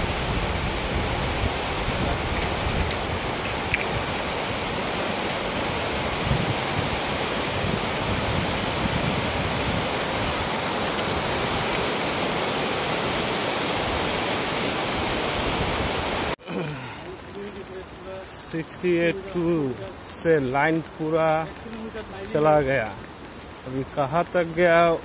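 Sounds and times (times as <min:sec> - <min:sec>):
wind buffeting microphone: 0:00.0 - 0:12.4
flooded river rushing: 0:00.0 - 0:25.0.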